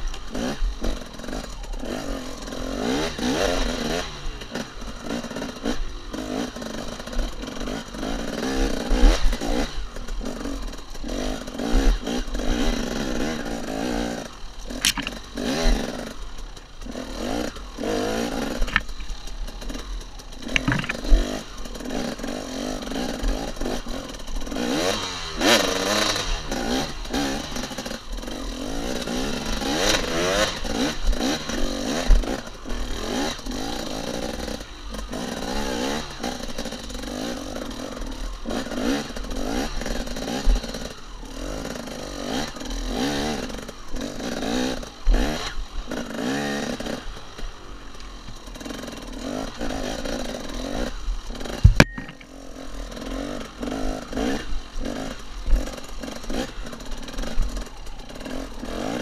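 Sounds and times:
dirt bike engine revving: 0.0s - 59.0s
bike knocking on bumps: 14.8s - 15.2s, 18.6s - 19.2s, 20.5s - 21.3s, 51.6s - 52.3s.

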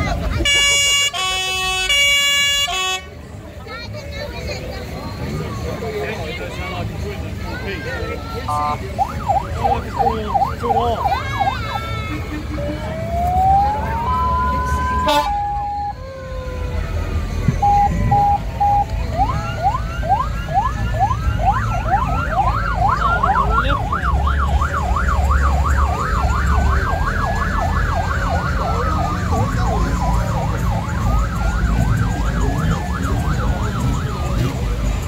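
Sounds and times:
electronic siren wailing and yelping: 12.9s - 16.8s, 17.6s - 34.3s.

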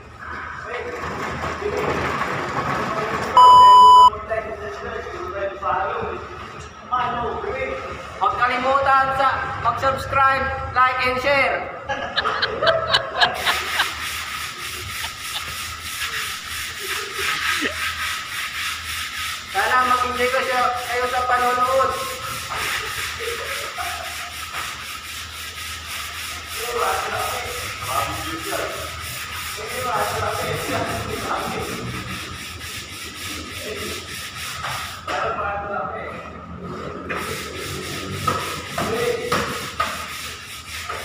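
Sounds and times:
sandpaper rubbing on wall: 12.2s - 35.2s, 36.6s - 41.0s.

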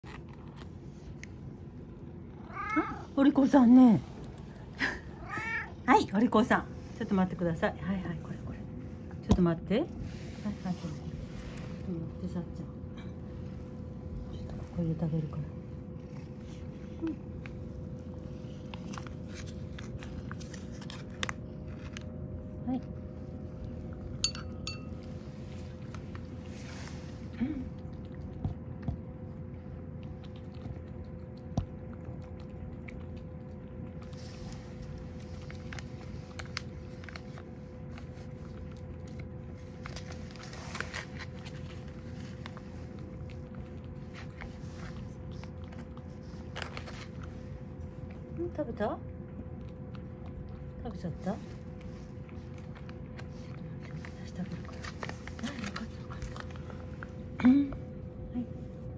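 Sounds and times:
cat licking and eating: 0.0s - 58.9s
low background hum: 0.0s - 58.9s
metal spoon clinking on bowl: 24.2s - 25.0s.

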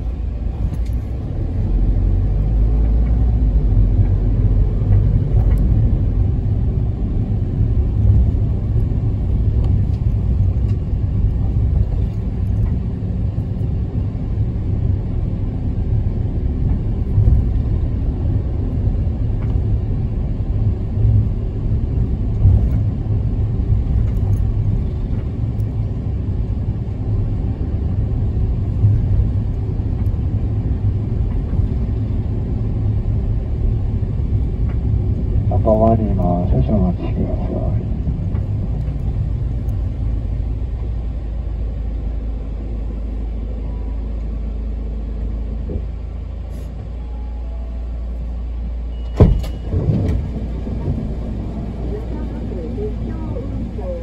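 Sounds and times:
diesel engine and tyre rumble: 0.0s - 54.0s
faint rattles and clicks: 23.7s - 25.9s.

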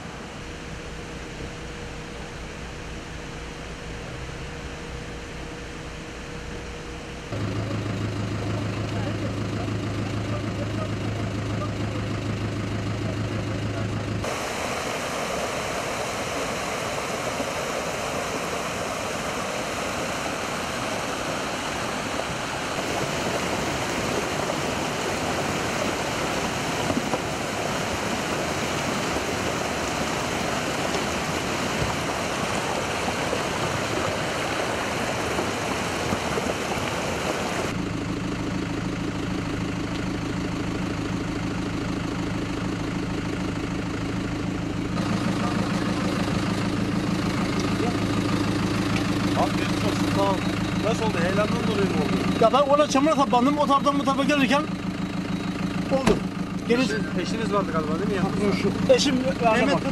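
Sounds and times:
vehicle engine idling: 0.0s - 59.9s
water rushing over rocks: 14.2s - 37.8s.

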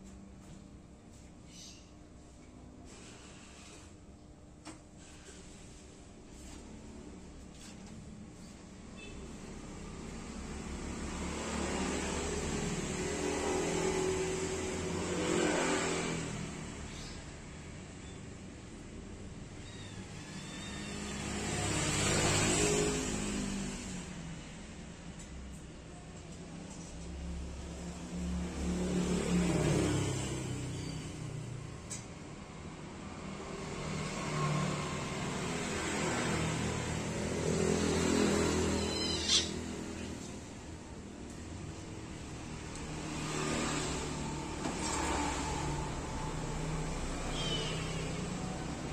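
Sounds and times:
vehicle engine passing by: 9.5s - 17.2s, 20.7s - 24.6s, 26.7s - 48.9s.

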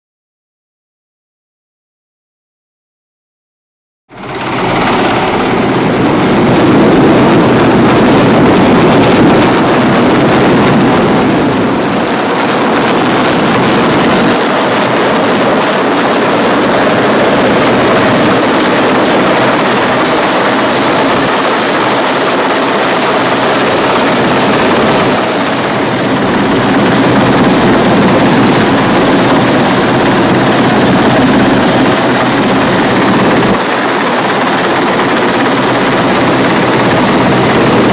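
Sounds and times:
helicopter rotor and turbine noise: 4.1s - 37.9s.

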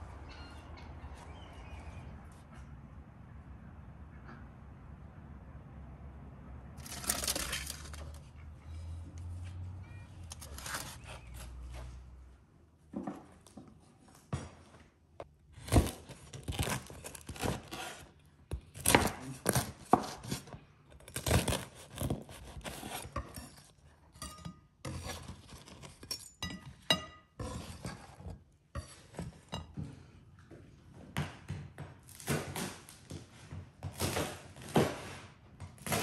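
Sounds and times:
knife cutting crusty bread: 6.8s - 8.2s, 10.2s - 11.5s, 15.5s - 29.6s.

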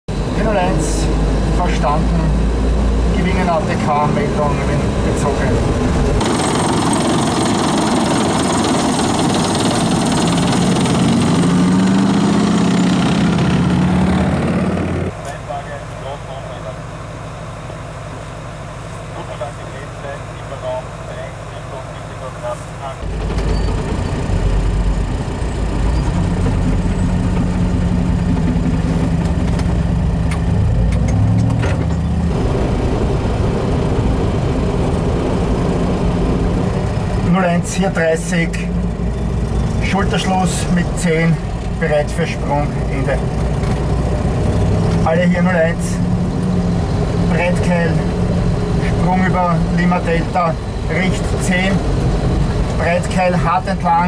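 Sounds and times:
armoured vehicle engine drone: 0.1s - 54.0s
tracked vehicle driving past: 0.2s - 15.3s.

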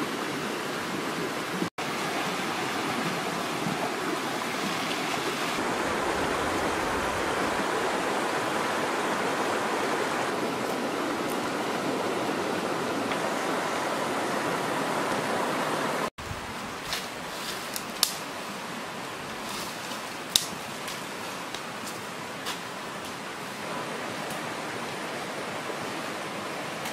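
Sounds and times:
river running over rocks: 0.0s - 17.3s, 18.0s - 26.9s
dry sticks snapping and rustling: 16.8s - 18.3s, 19.5s - 23.2s.

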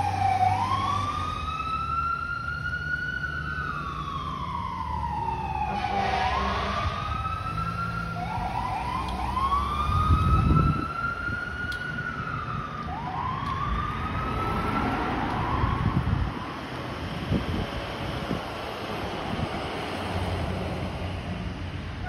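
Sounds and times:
fire engine siren wailing: 0.0s - 22.0s
low traffic rumble: 0.0s - 22.0s
wind on microphone: 9.7s - 11.7s, 15.3s - 19.9s.

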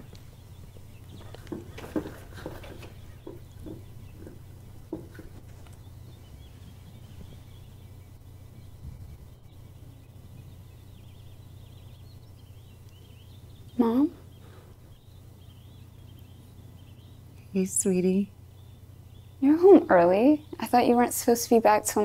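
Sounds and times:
faint bird chirps: 0.0s - 22.0s
steady low hum: 0.0s - 22.0s
soft knocks: 1.1s - 5.8s.

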